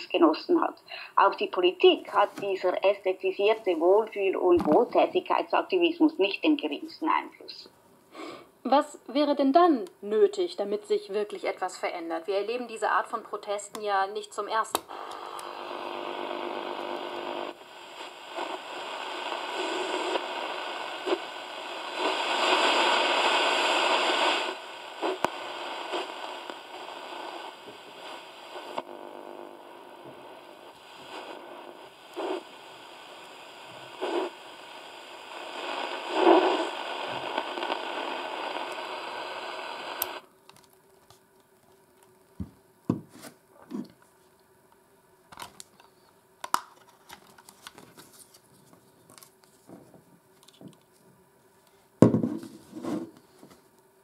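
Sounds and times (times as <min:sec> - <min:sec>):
radio static hiss: 0:00.0 - 0:08.8, 0:10.6 - 0:41.2, 0:51.6 - 0:54.0
clicks handling plastic radio case: 0:45.3 - 0:48.4.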